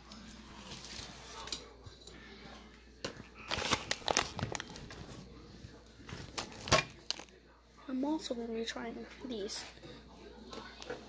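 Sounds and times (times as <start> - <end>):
plastic wrapper crinkling: 3.4 - 5.1.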